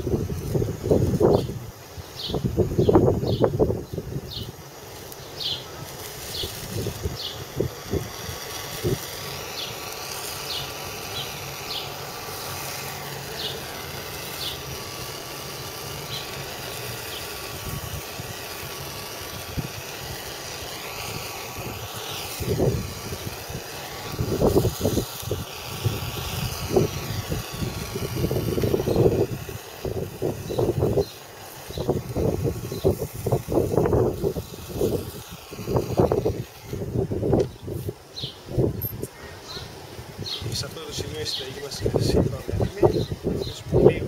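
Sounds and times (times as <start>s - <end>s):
wind buffeting microphone: 0.0s - 4.6s, 21.1s - 39.1s, 40.1s - 44.0s
blowtorch hissing: 0.0s - 44.0s
bird chirps: 1.3s - 4.6s, 5.2s - 5.7s, 37.5s - 38.4s.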